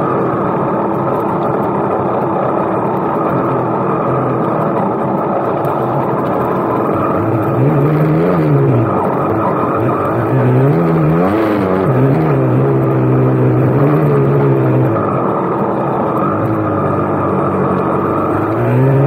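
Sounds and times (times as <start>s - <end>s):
steady rushing noise: 0.0s - 19.0s
dirt bike engine revving: 2.8s - 19.0s.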